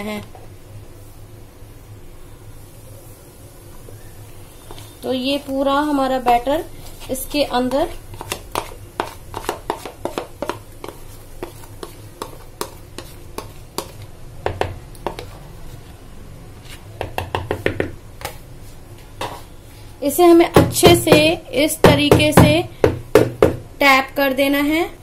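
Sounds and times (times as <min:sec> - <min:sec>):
spoon scraping plastic bowl: 0:04.6 - 0:14.1, 0:15.0 - 0:15.9.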